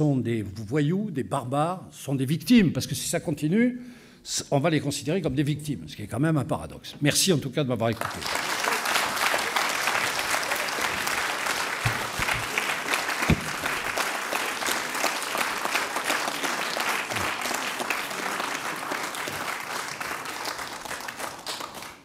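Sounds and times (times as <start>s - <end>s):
audience applauding: 8.0s - 22.0s
low thumps: 13.2s - 13.8s.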